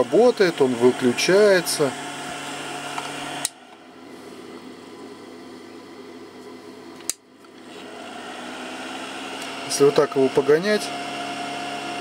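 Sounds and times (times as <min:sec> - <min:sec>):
cooling fan humming: 0:00.0 - 0:12.0
sharp click: 0:07.0 - 0:07.2.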